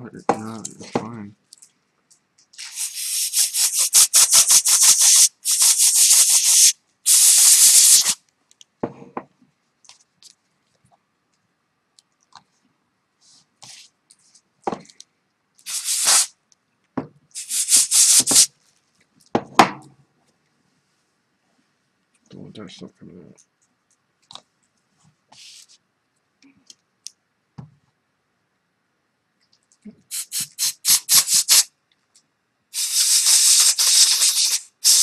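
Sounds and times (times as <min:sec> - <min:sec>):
brush pen scrubbing paper: 0:02.6 - 0:08.2, 0:13.2 - 0:14.4, 0:15.7 - 0:16.3, 0:17.4 - 0:18.5, 0:25.3 - 0:25.8.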